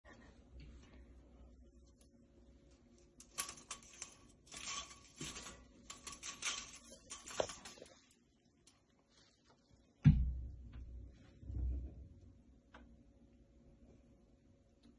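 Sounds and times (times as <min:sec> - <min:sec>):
blind slats clicking and rustling: 0:03.2 - 0:08.2.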